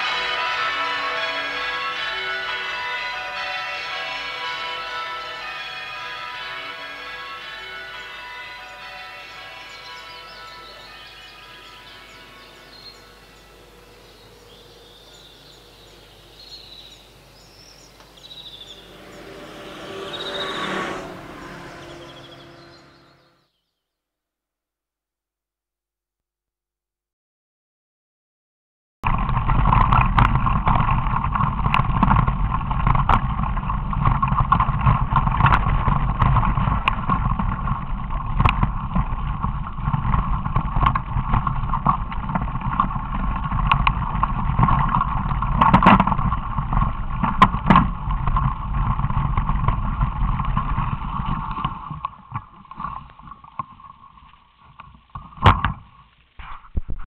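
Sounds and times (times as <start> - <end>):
mountain bike rumble and rattling: 12.4 - 23.6, 29.0 - 57.0.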